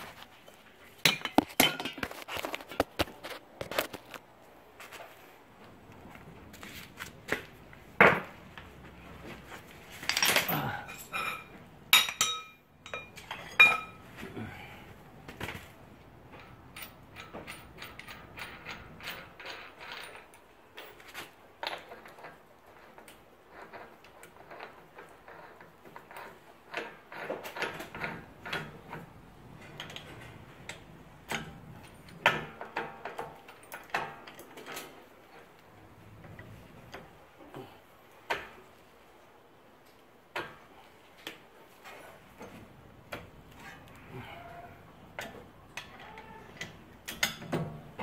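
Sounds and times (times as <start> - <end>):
hand tools clinking: 10.0 - 14.1.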